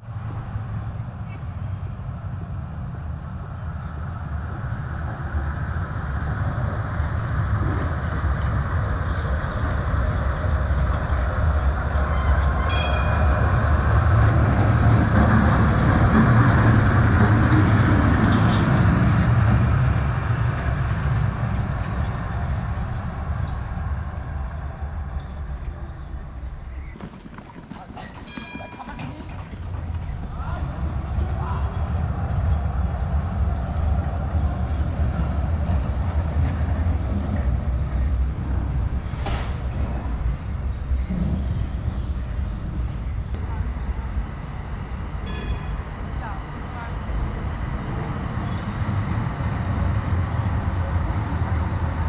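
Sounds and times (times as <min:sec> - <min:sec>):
tram rolling rumble on rails: 0:00.0 - 0:52.0
faint high wheel squeaks: 0:11.7 - 0:13.5, 0:26.9 - 0:30.4
short high ringing: 0:12.6 - 0:13.4.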